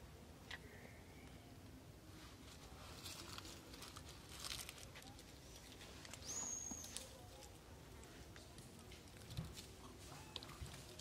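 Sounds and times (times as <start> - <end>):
monkeys rustling and scratching: 2.3 - 11.0.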